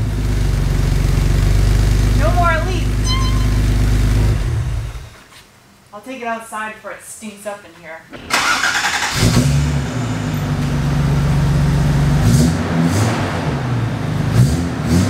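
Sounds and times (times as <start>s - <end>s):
deep car engine note: 2.8s - 4.5s.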